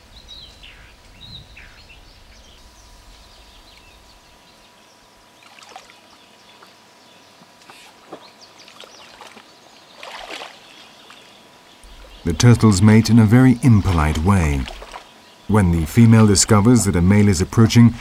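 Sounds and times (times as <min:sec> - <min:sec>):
water sloshing and splashing: 0:05.4 - 0:06.2, 0:07.6 - 0:12.3, 0:13.1 - 0:15.2.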